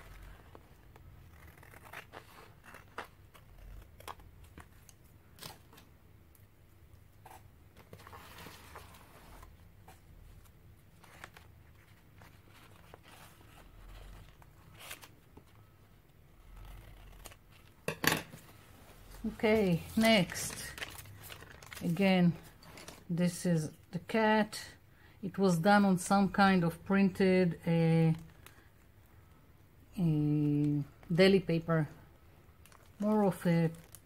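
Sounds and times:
paper rustling: 18.3s - 23.0s.

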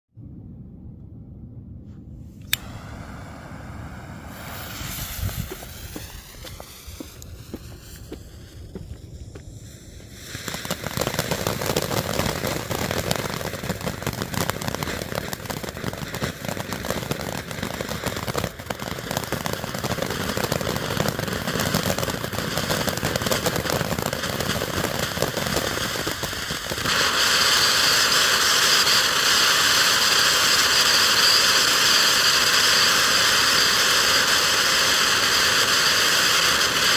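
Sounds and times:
firework crackling: 2.4s - 36.9s
firework fountain hissing: 2.4s - 36.9s.

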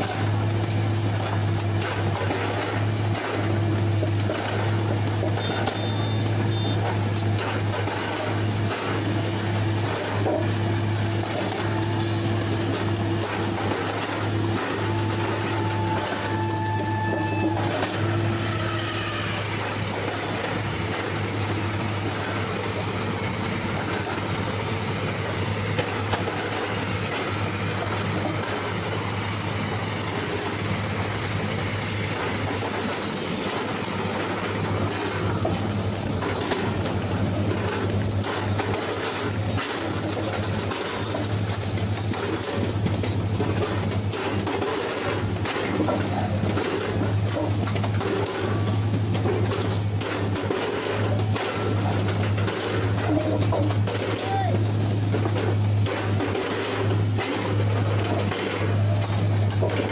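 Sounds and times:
machine engine humming: 0.0s - 59.9s.

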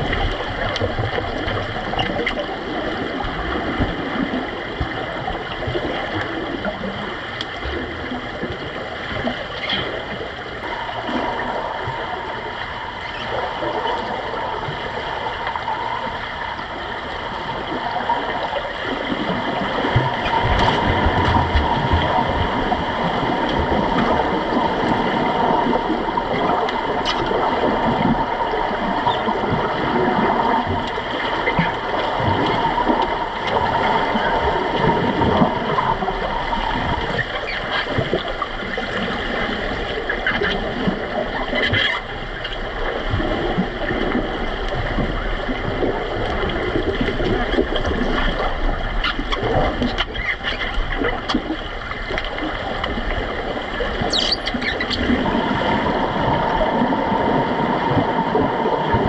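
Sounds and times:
underwater gurgling and bubbling: 0.0s - 59.0s
steady tone: 10.3s - 38.1s.

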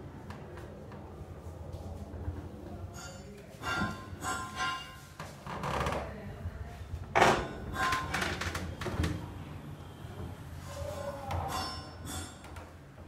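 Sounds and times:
sliding door rollers rumbling: 7.2s - 12.5s.

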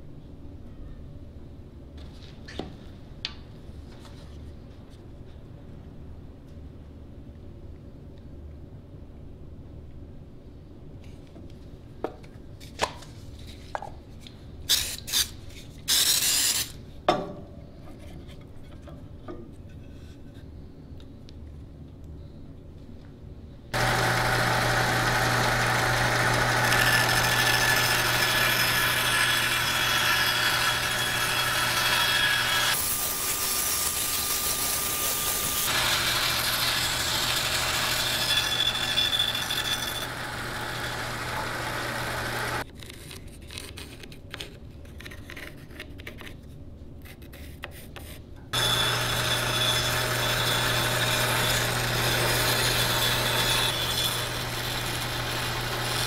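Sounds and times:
bandsaw motor hum: 23.8s - 42.6s, 48.6s - 56.0s
saw blade rasping through seed pod: 23.8s - 42.6s, 48.6s - 56.0s.

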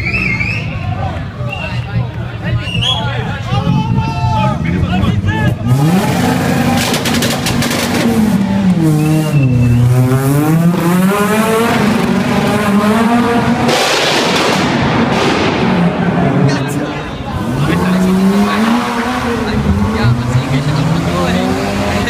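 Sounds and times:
harsh rushing noise: 3.2s - 22.0s
car engine at high revs: 4.7s - 22.0s.

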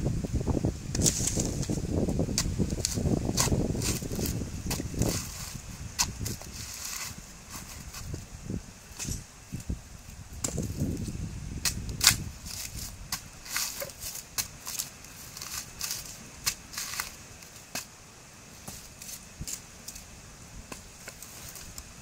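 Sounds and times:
coconut husk cracking and snapping: 11.6s - 17.9s.

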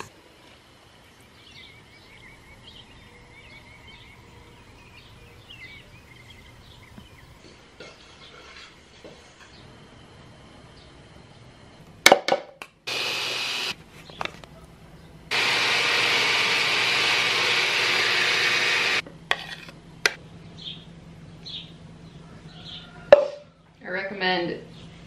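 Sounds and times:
immersion blender running: 12.9s - 13.8s, 15.3s - 19.0s.

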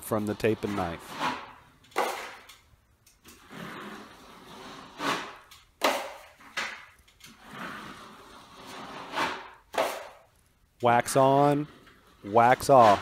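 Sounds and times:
taping knife scraping joint compound: 0.0s - 2.5s, 3.2s - 10.5s, 11.2s - 13.0s.

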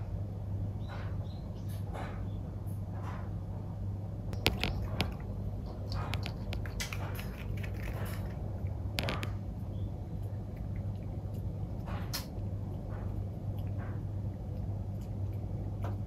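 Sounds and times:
puppy eating crunchy bites: 4.4s - 16.0s.

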